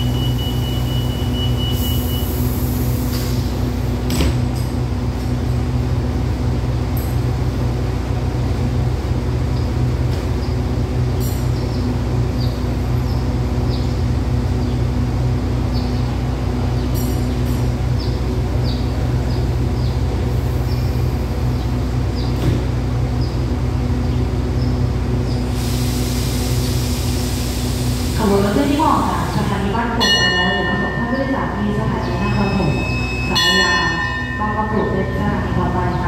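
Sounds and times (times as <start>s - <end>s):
diesel train engines idling: 0.0s - 36.0s
hiss: 25.5s - 28.2s.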